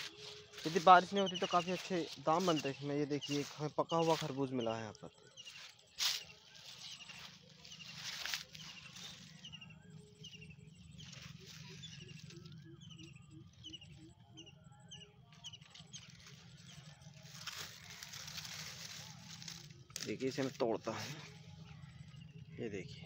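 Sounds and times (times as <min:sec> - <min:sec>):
leaves rustling: 0:00.0 - 0:04.5, 0:05.4 - 0:09.5, 0:10.9 - 0:12.6, 0:15.9 - 0:21.4
birds chirping and whistling: 0:00.0 - 0:23.0
low steady hum: 0:05.0 - 0:23.0.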